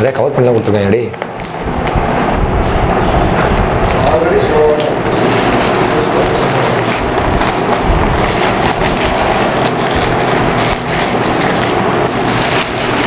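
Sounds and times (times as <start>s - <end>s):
steady rushing background noise: 0.0s - 13.0s
paper and plastic crinkling: 3.9s - 13.0s.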